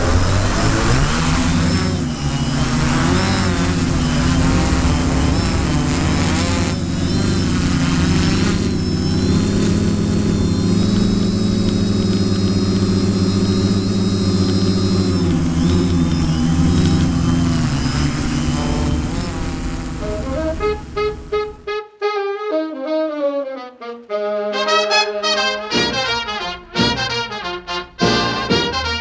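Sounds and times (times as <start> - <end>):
drone propellers buzzing: 0.0 - 21.7.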